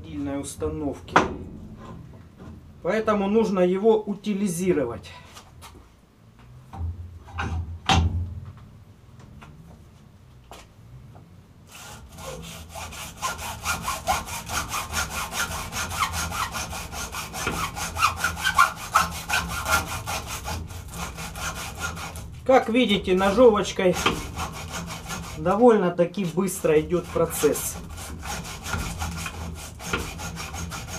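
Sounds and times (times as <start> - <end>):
hacksaw cutting copper windings: 11.7 - 22.3, 23.0 - 25.6, 26.4 - 30.9.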